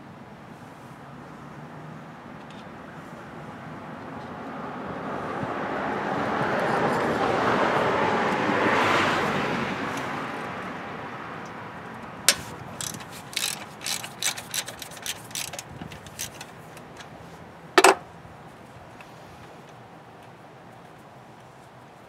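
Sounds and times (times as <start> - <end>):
rushing background noise: 0.2 - 22.0
ratchet wrench clicking: 12.3 - 17.2.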